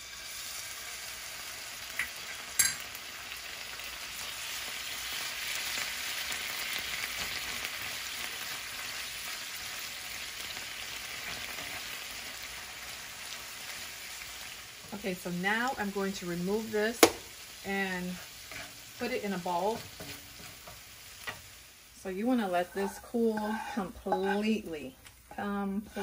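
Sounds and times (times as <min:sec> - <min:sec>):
broth sizzling in a frying pan: 0:00.0 - 0:26.0
wooden spatula stirring: 0:18.1 - 0:21.5, 0:22.4 - 0:24.7.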